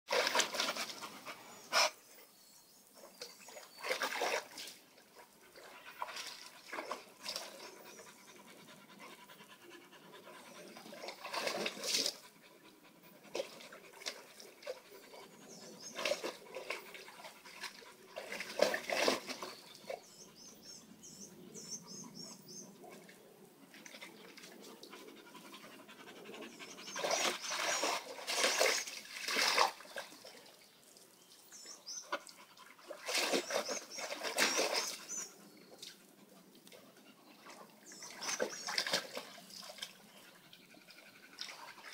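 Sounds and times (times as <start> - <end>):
water sloshing in a pool: 0.1 - 2.0, 2.8 - 20.4, 21.9 - 41.9
dog panting: 7.7 - 11.0, 24.6 - 27.8.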